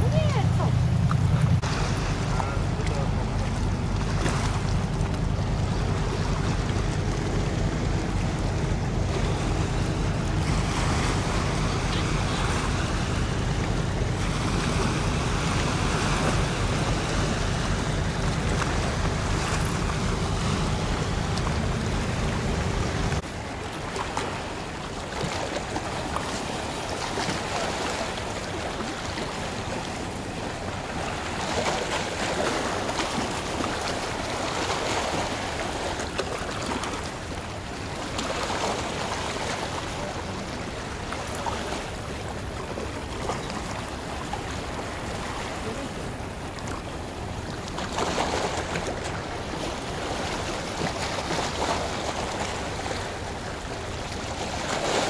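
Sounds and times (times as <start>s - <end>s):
ship engine hum: 0.0s - 55.0s
water noise: 0.0s - 55.0s.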